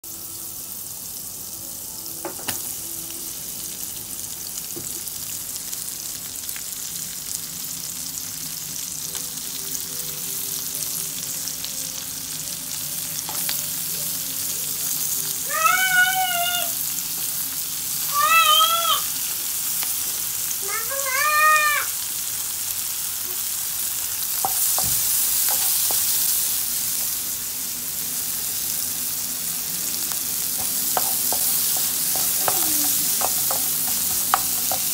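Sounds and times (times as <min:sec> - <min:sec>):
onions frying in a pan: 0:00.0 - 0:34.9
cat meowing: 0:15.4 - 0:16.7, 0:18.1 - 0:19.1
spatula tapping pan: 0:30.5 - 0:34.9.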